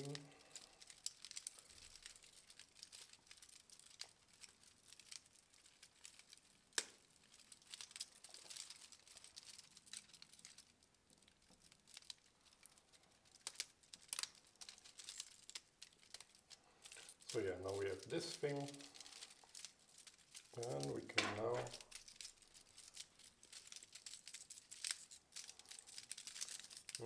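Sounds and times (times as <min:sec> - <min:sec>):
plastic parts clicking and rustling: 0:00.0 - 0:27.0.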